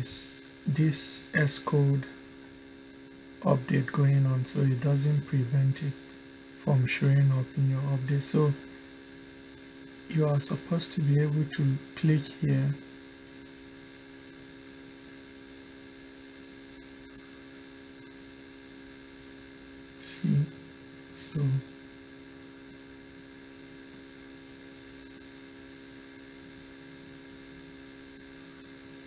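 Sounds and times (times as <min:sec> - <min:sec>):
faint hiss: 0:00.0 - 0:22.9
electrical mains hum: 0:00.0 - 0:29.0.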